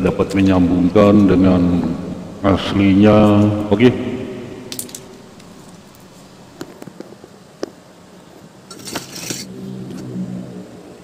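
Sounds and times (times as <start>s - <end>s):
handling wires and tools: 4.7s - 7.1s, 8.7s - 9.5s
rustling scrape: 8.7s - 9.6s.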